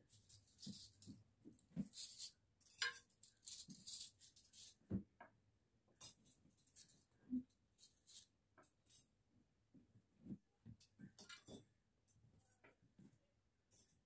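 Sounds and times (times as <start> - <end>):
cutlery knocking and clinking: 2.6 - 3.2.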